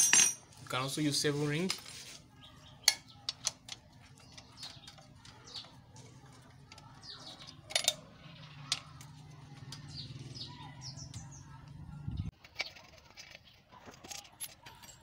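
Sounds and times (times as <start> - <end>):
spanner clinking on bolts: 0.0 - 0.6, 2.8 - 10.0
birds chirping: 0.0 - 13.8.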